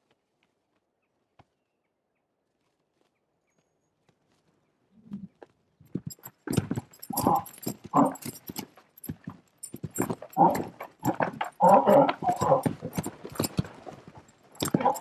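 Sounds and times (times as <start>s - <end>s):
hooves thudding on dirt: 2.5s - 15.0s
saddle rattling: 5.2s - 15.0s
horse grunting breaths: 6.5s - 15.0s.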